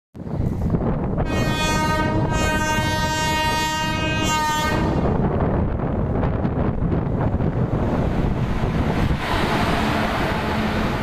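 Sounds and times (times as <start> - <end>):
wind noise on microphone: 0.2 - 11.0
locomotive horn blast: 1.2 - 5.1.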